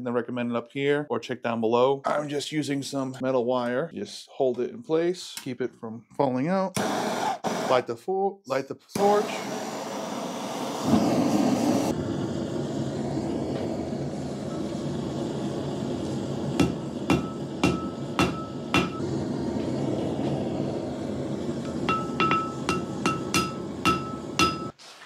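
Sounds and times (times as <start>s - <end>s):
forge burner rushing: 6.8s - 7.8s, 9.0s - 24.8s
hammer striking hot steel on anvil: 16.6s - 19.1s, 21.7s - 24.8s.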